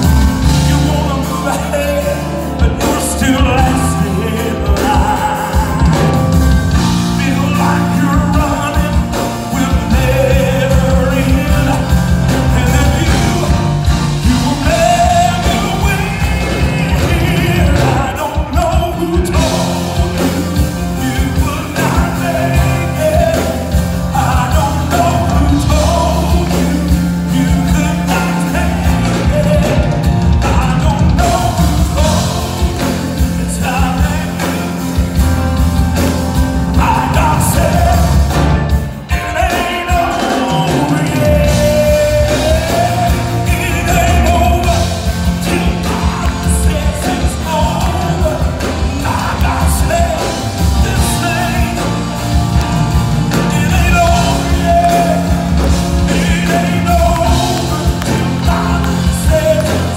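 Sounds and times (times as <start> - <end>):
band playing: 0.0 - 59.9
man singing gospel song: 0.0 - 59.9.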